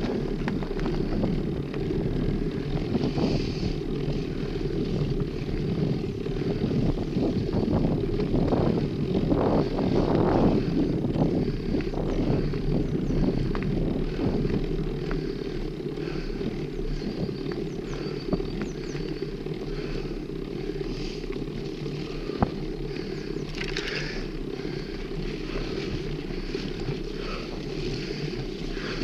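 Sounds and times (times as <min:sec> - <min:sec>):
bike knocking over bumps: 0:00.0 - 0:03.0
tyres rolling over dirt: 0:00.0 - 0:29.0
wind rumbling on microphone: 0:00.0 - 0:29.0.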